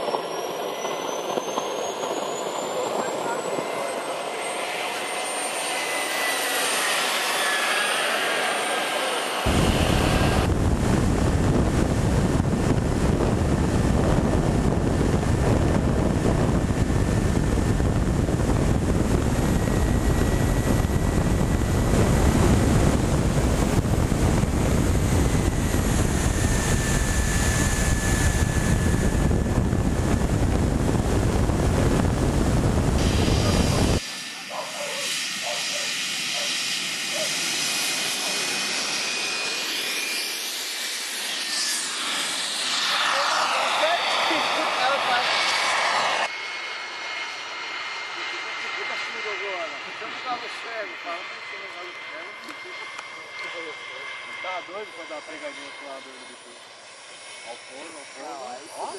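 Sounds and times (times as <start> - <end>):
rush of wind and motor: 0.0 - 46.6
model jet whine passing: 0.0 - 58.9.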